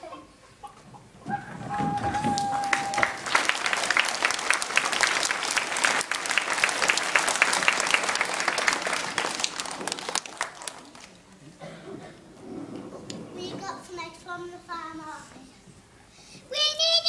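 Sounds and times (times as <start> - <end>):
audience applauding: 1.5 - 11.3.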